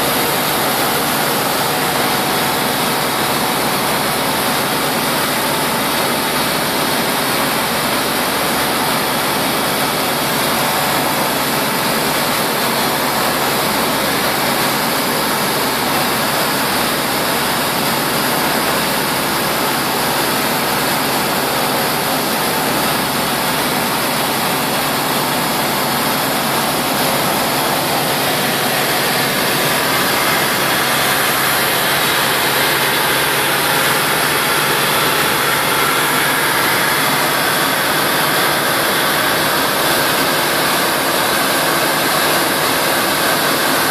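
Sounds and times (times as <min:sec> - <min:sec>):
aircraft engine and propeller drone: 0:13.6 - 0:43.9.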